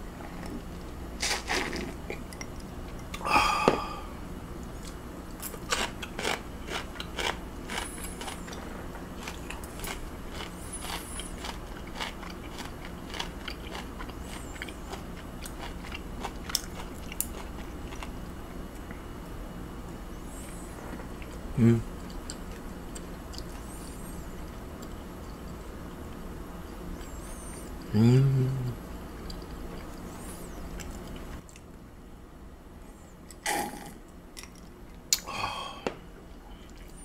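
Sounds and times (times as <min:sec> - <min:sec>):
chewing raw meat: 0:04.6 - 0:19.0, 0:20.8 - 0:27.9, 0:29.0 - 0:31.7.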